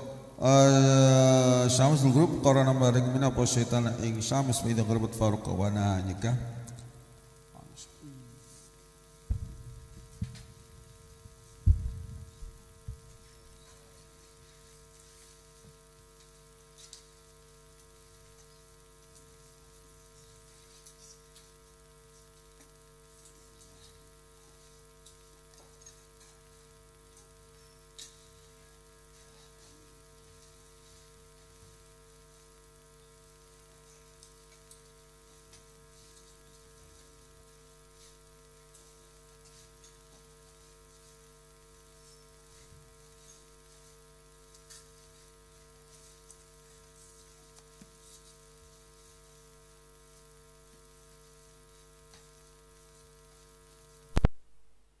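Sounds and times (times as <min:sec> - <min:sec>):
electrical mains hum: 0:00.0 - 0:55.0
loud short pop: 0:09.3 - 0:10.4.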